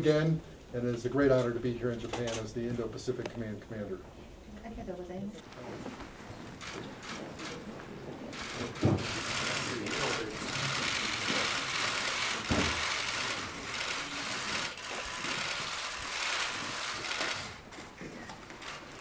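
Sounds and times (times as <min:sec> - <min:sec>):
camera shutters clicking: 0:06.5 - 0:07.7, 0:08.3 - 0:19.0.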